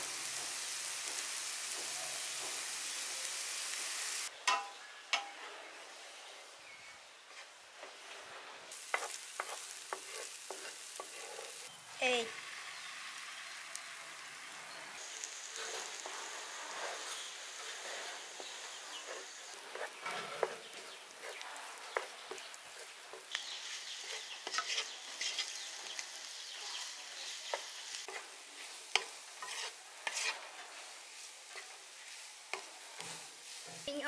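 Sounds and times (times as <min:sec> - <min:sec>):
egg sizzling in pan: 0:00.0 - 0:04.3, 0:08.7 - 0:34.0
wooden spatula scraping pan: 0:07.3 - 0:11.8, 0:15.2 - 0:34.0.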